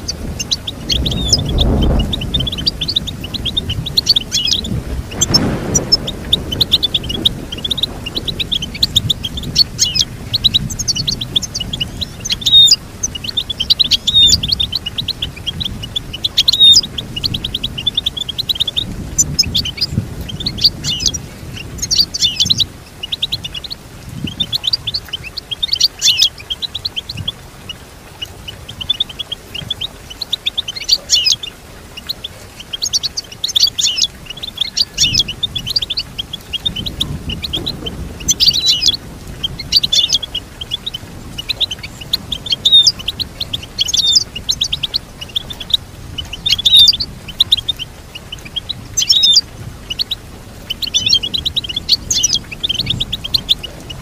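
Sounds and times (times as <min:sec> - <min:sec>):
bird twittering and trilling: 0:00.0 - 0:54.0.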